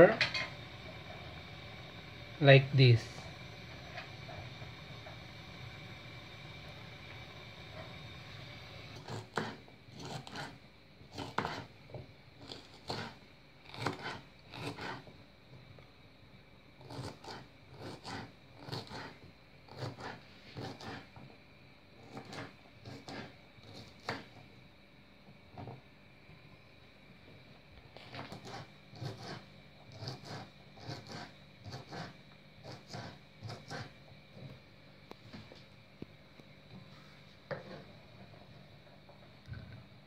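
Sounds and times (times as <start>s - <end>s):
low steady hum: 0.0s - 40.0s
knife chopping on wooden board: 9.0s - 10.5s, 11.1s - 11.7s, 13.7s - 15.0s.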